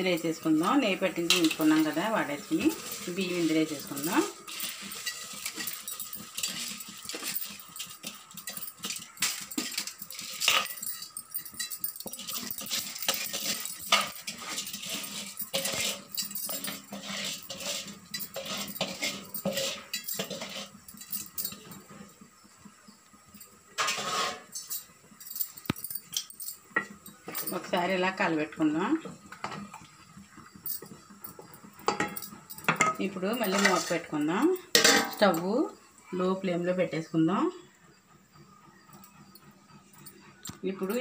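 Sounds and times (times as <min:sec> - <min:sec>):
metal scraping pot rim: 0:00.0 - 0:22.0, 0:23.8 - 0:24.8, 0:31.8 - 0:35.4.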